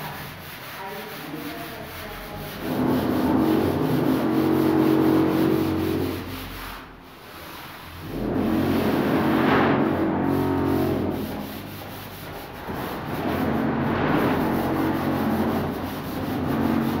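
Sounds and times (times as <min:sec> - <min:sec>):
pole sander rasping on wall: 0:00.0 - 0:17.0.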